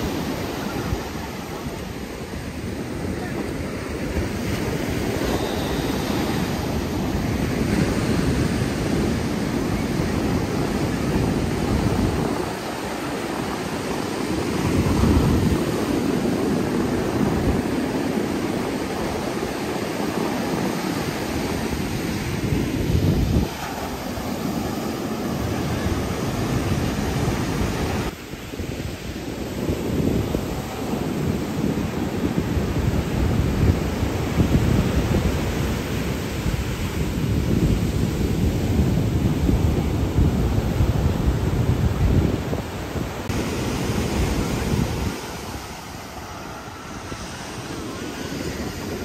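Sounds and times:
ocean surf breaking on beach: 0.0s - 49.0s
wind buffeting microphone: 0.0s - 49.0s.

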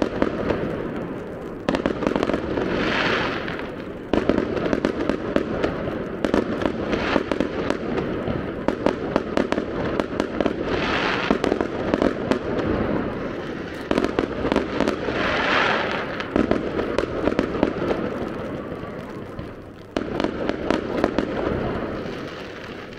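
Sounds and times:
fireworks bangs and crackles: 0.0s - 22.9s.

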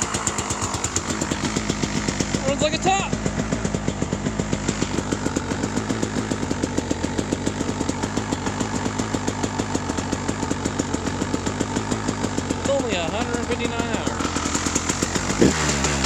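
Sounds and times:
two-stroke engine idling: 0.0s - 16.0s.

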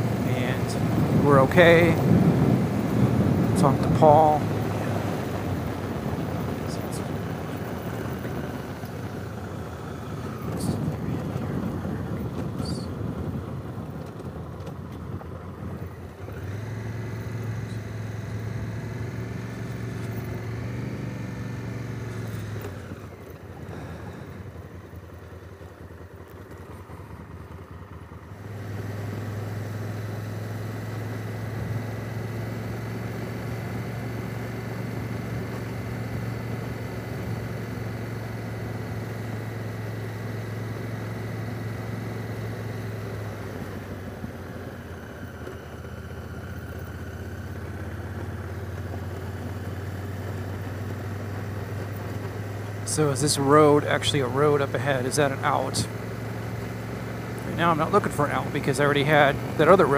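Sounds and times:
rushing wind noise: 0.0s - 7.3s
motorcycle engine running: 0.0s - 59.9s.

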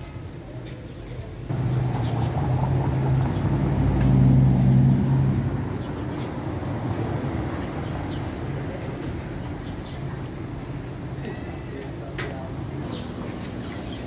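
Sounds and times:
traffic rumble: 0.0s - 14.0s
vehicle engine humming: 1.5s - 11.2s.

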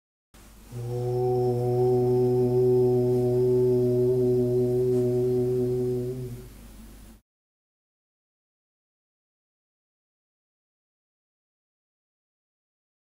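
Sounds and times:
long low vocal tone: 0.7s - 6.6s.

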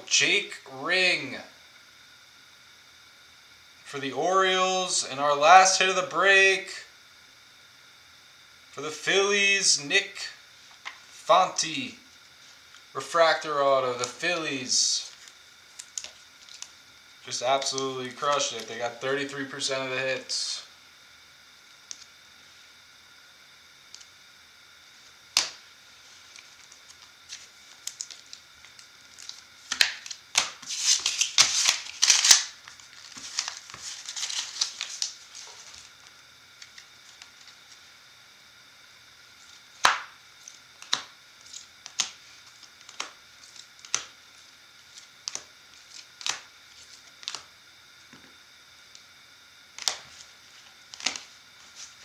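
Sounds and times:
plastic rustling and scraping: 29.1s - 36.1s.

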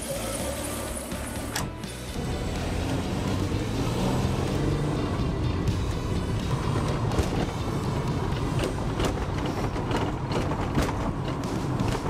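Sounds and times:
background music: 0.0s - 12.0s
car engine and tyres rumbling: 0.0s - 12.0s
knocks and rattles: 6.5s - 12.0s.

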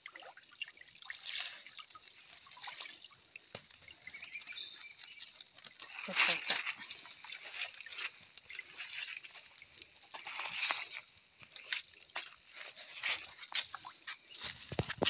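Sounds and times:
water sloshing and dripping: 0.0s - 15.0s.

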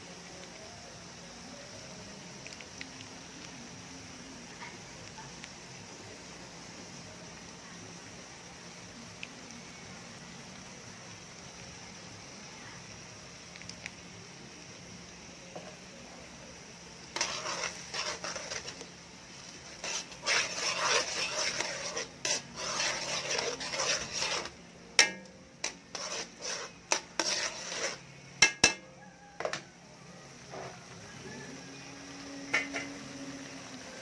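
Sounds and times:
utensil scraping sauce in pan: 17.0s - 29.6s.

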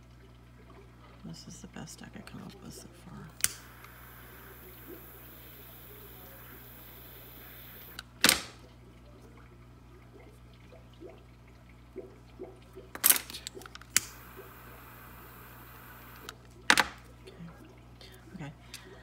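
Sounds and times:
small torch hissing: 3.4s - 8.0s.

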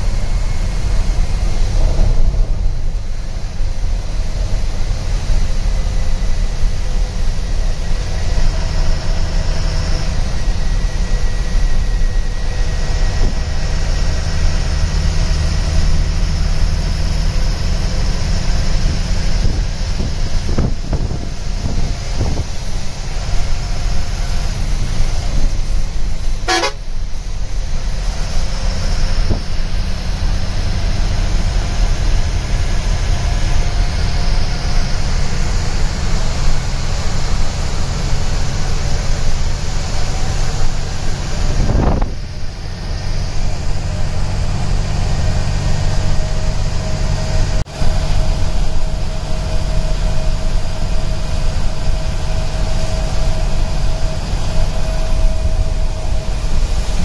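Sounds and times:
bus engine drone: 0.0s - 57.0s
horn tooting: 26.4s - 27.0s.

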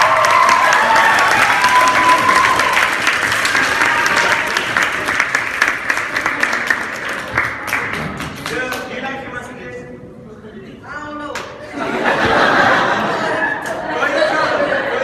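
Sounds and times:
voices cheering: 0.0s - 5.2s
audience applauding: 0.0s - 8.9s.

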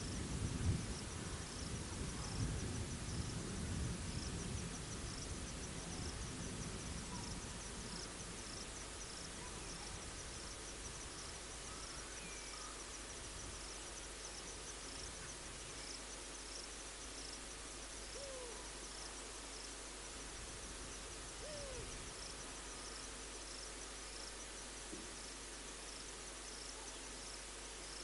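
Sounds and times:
insects chirping: 0.0s - 28.0s.

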